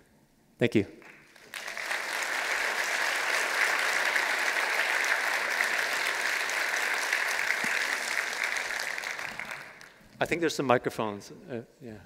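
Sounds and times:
audience applauding: 1.0 - 10.2.

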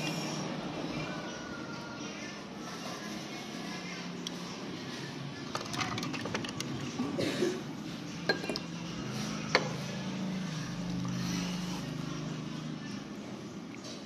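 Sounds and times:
dishes and cutlery clinking: 8.2 - 8.8.

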